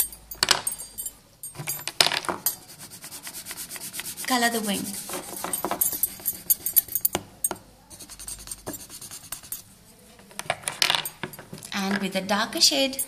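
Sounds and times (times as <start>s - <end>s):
colouring strokes scratching on paper: 2.6s - 6.8s, 7.9s - 9.6s
pencil clicks and taps: 8.5s - 9.6s.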